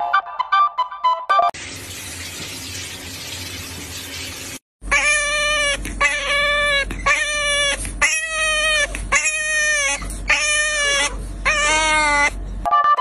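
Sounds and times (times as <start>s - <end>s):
puppy whining: 4.9s - 12.6s.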